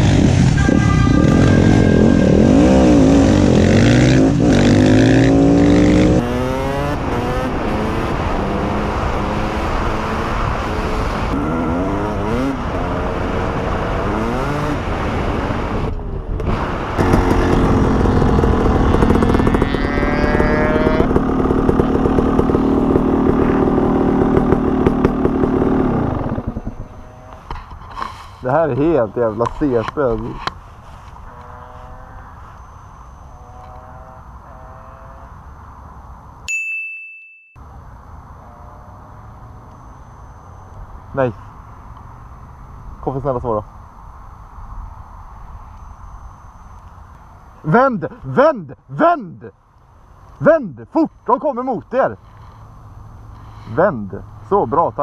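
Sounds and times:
dirt bike revving on gravel: 0.0 - 27.6
motorcycle engine revving: 0.0 - 29.0, 31.1 - 36.0.

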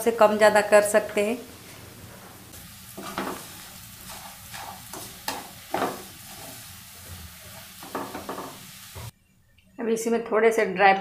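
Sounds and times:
ghee sizzling: 0.0 - 9.1
wooden spatula scraping pan: 1.6 - 9.1.

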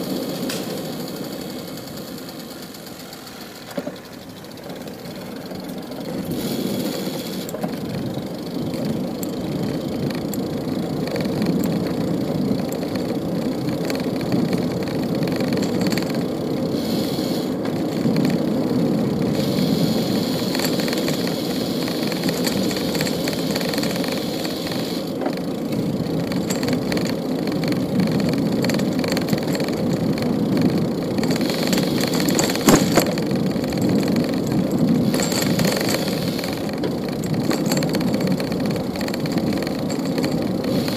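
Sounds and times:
bicycle road noise rumble: 0.0 - 40.9
car traffic: 0.0 - 40.9.

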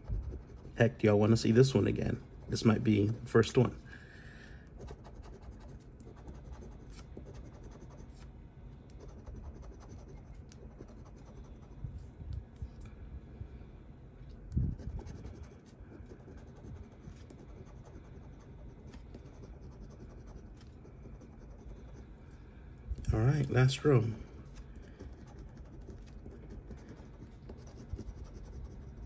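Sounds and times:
scratching lottery ticket: 0.0 - 3.1, 4.8 - 8.3, 8.9 - 11.8, 14.7 - 22.0, 23.4 - 29.0.

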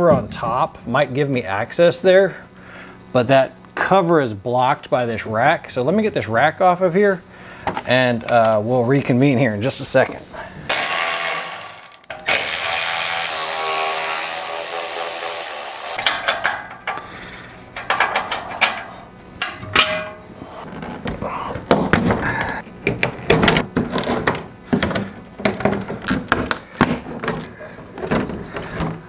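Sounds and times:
cordless electric ratchet running: 10.7 - 17.1
clicks and knocks of metal parts: 16.0 - 17.1, 17.8 - 20.2.

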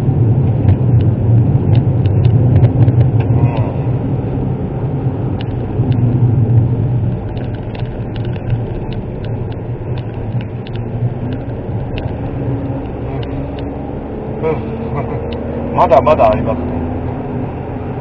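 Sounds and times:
car engine and road noise: 0.0 - 18.0
light ticks in car cabin: 7.0 - 13.7.

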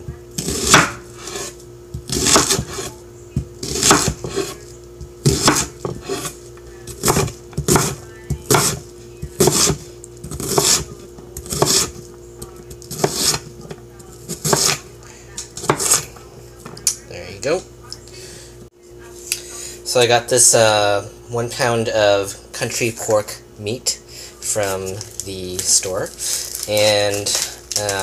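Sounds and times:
faint steady hum: 0.0 - 28.0
knife chopping on wooden board: 0.4 - 6.3, 6.9 - 8.8, 9.4 - 12.0, 12.7 - 13.5, 14.2 - 14.8, 15.6 - 16.0.

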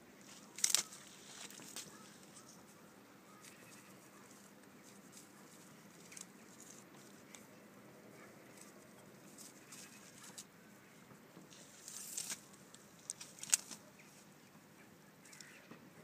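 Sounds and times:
donkey chewing dry leaves: 0.2 - 7.5, 11.5 - 14.3
stalks snapping: 0.5 - 1.9, 11.8 - 13.8.

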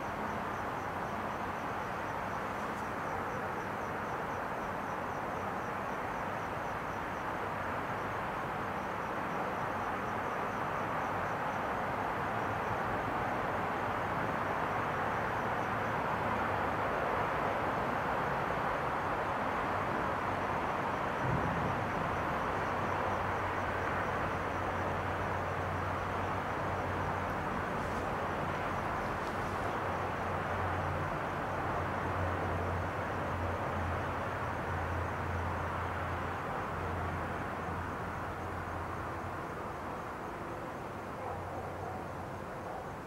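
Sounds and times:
insects chirping: 0.0 - 43.0.

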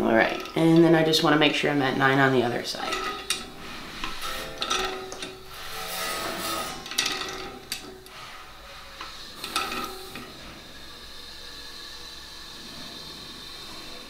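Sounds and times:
tools rubbing and scraping: 0.1 - 1.3, 2.5 - 11.6.

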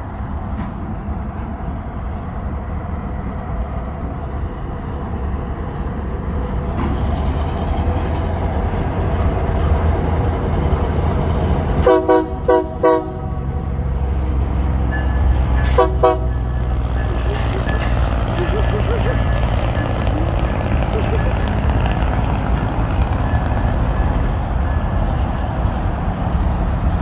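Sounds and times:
locomotive engine rumble: 0.0 - 27.0
train horn blasts: 11.8 - 13.5, 15.6 - 16.6.

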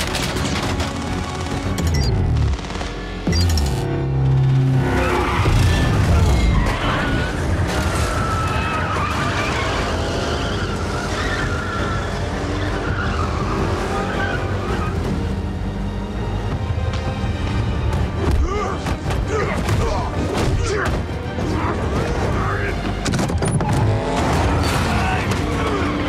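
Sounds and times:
film score music: 0.0 - 26.0
tyres squealing: 5.0 - 15.0
car engines revving hard: 23.6 - 26.0.

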